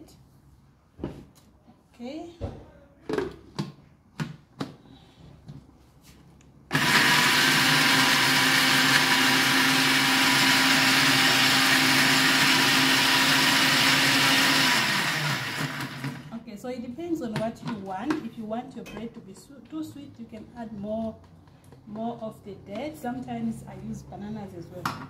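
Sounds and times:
blender motor running: 6.7s - 16.3s.

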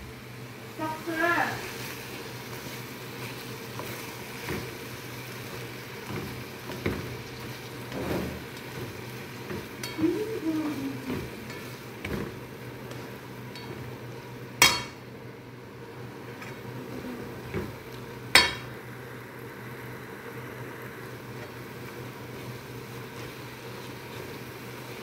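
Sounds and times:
meat sizzling: 0.0s - 25.0s
spatula scraping frying pan: 6.0s - 10.0s.

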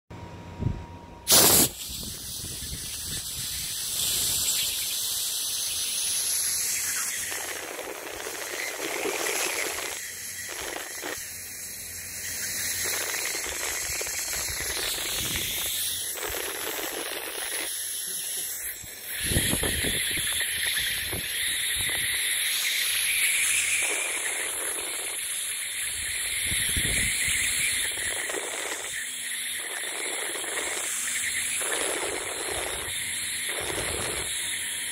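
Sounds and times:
sharp loud click: 1.3s - 2.5s
laser marking machine hissing: 1.3s - 34.9s.

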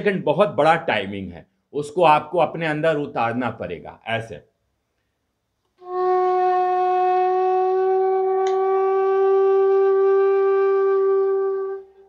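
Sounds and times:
bamboo flute long note: 5.8s - 12.0s.

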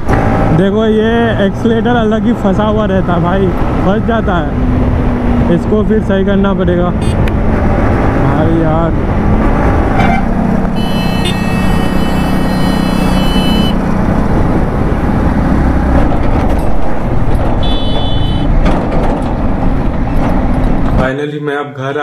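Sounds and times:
wind and road noise: 0.0s - 21.3s
motorcycle engine hum: 4.5s - 21.0s
high horn: 10.0s - 13.9s, 17.6s - 18.6s.

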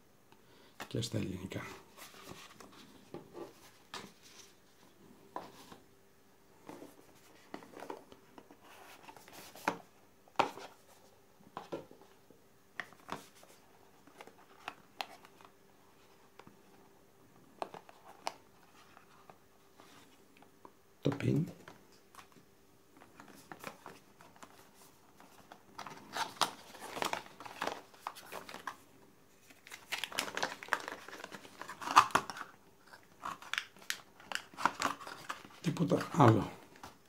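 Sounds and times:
paper and cardboard rustling: 1.6s - 5.8s, 6.6s - 12.1s, 23.0s - 37.0s.

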